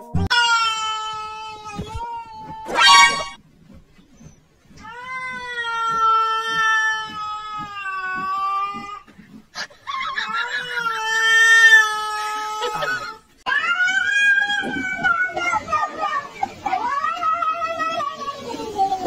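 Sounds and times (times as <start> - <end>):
cat yowling: 0.3 - 3.4, 4.8 - 9.1, 10.2 - 15.5.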